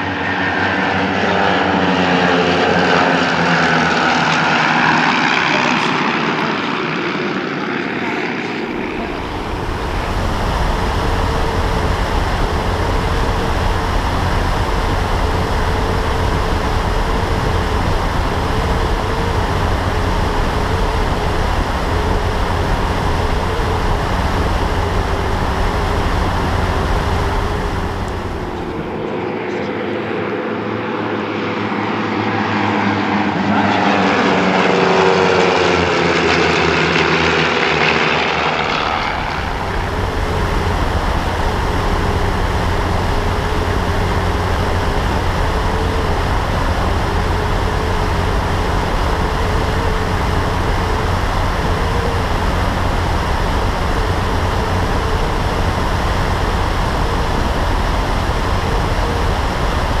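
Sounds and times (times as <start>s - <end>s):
plane engine and wind noise: 0.0s - 60.0s
propeller planes flying past: 0.0s - 60.0s.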